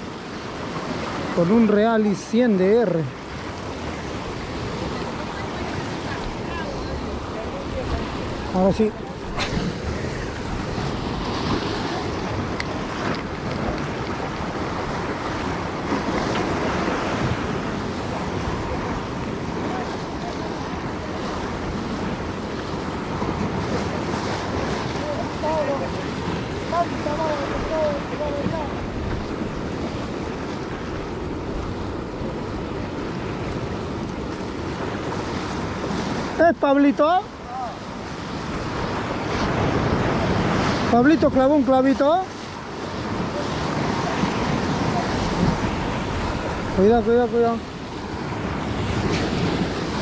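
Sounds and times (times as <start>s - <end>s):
waves washing in: 0.0s - 50.0s
wind on microphone: 3.1s - 36.4s, 37.0s - 50.0s
wind noise on microphone: 42.2s - 47.0s, 47.7s - 50.0s.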